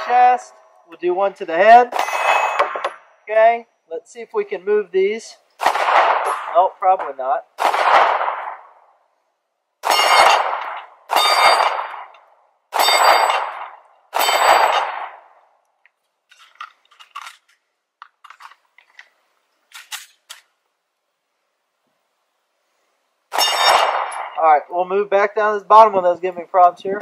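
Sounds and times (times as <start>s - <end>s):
pistol shots: 1.9s - 3.1s, 5.6s - 6.6s, 7.6s - 8.8s, 9.8s - 15.3s, 23.3s - 24.4s
bullet clanging on steel target: 1.9s - 3.2s, 23.4s - 24.4s.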